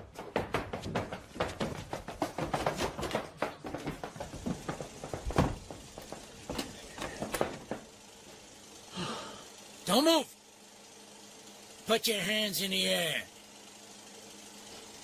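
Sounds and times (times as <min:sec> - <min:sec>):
rapid clicks and knocks: 0:00.0 - 0:08.0.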